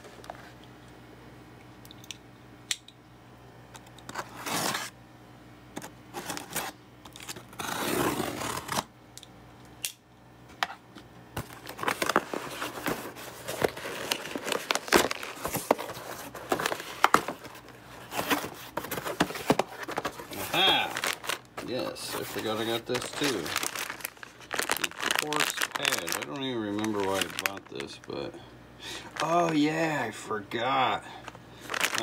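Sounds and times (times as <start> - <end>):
packing tape tearing: 4.1 - 4.9, 5.8 - 8.9, 11.4 - 28.1, 31.6 - 32.0
cardboard crackling and scraping: 11.4 - 28.2, 31.6 - 32.0.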